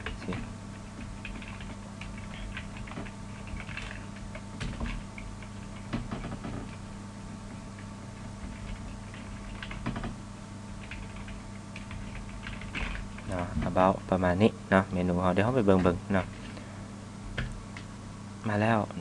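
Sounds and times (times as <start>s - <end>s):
keyboard typing clicks: 0.0s - 6.8s, 7.8s - 10.2s
steady low hum: 0.0s - 19.0s.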